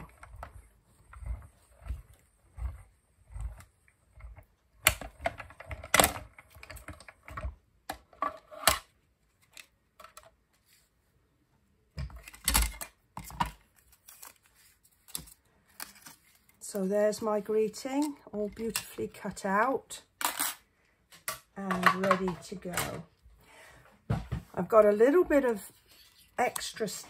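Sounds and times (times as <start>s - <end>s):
plastic plates clicking and clattering: 21.2s - 23.1s.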